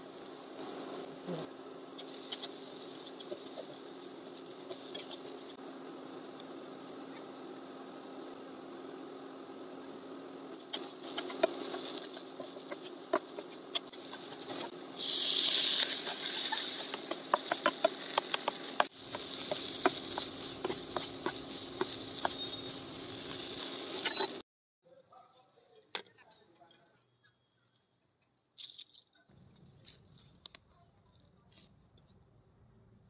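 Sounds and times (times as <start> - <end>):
steady low hum: 0.0 - 24.4
wooden spatula scraping frying pan: 11.0 - 23.6
loud hiss: 14.3 - 24.0.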